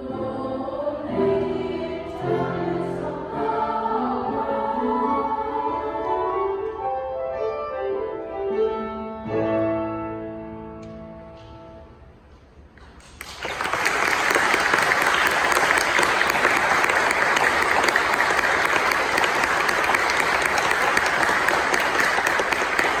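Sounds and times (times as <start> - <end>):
audience clapping: 12.8 - 23.0.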